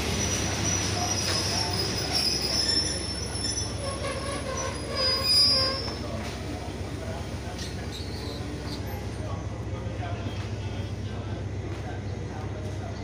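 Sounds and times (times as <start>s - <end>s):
low train rumble: 0.0s - 13.0s
train wheels squealing: 0.1s - 6.2s, 7.6s - 9.0s.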